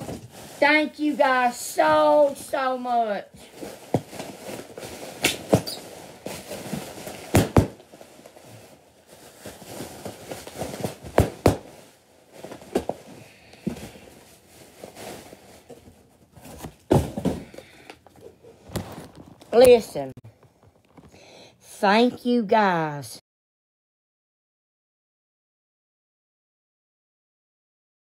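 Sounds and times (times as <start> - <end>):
plastic packaging rustling: 0.0 - 2.7, 3.3 - 21.2
thumps and knocks of handling: 3.5 - 8.1, 9.7 - 14.1, 15.0 - 21.2.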